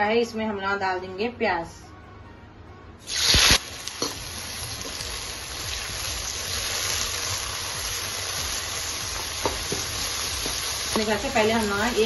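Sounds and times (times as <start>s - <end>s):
onions sizzling in hot oil: 3.1s - 12.0s.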